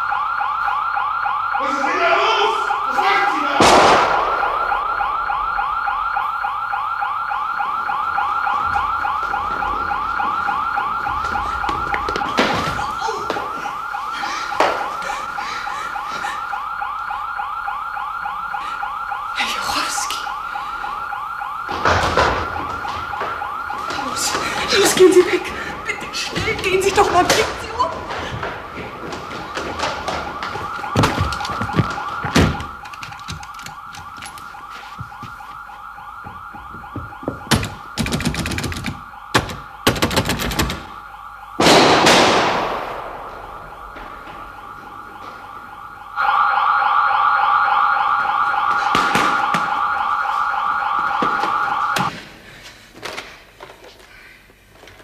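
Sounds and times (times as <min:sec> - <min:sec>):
burglar alarm siren warbling: 0:00.0 - 0:52.1
loud bang with echo: 0:03.5 - 0:05.1, 0:41.6 - 0:44.4
knocks and clatter: 0:21.7 - 0:24.6.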